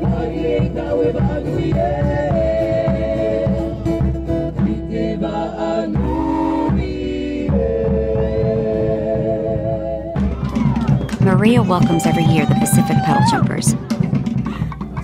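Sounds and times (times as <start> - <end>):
hand drums beating: 10.2 - 15.0
voices singing held notes: 11.2 - 13.7.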